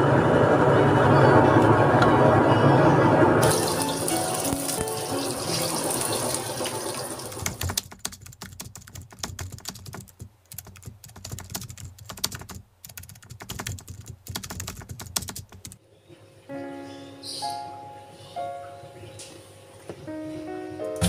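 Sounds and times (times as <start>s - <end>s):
computer keyboard typing: 7.3s - 15.8s.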